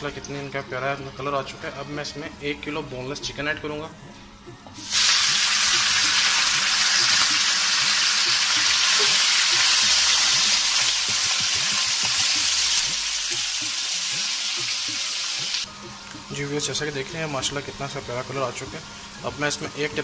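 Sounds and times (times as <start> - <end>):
chicken sizzling in hot oil: 4.8 - 20.0.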